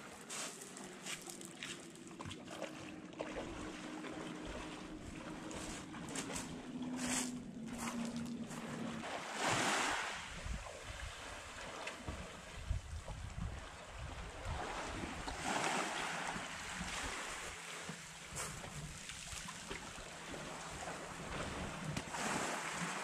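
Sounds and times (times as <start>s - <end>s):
sloshing steps in water: 0.3s - 10.0s
wind buffeting microphone: 10.2s - 11.2s, 12.1s - 15.3s.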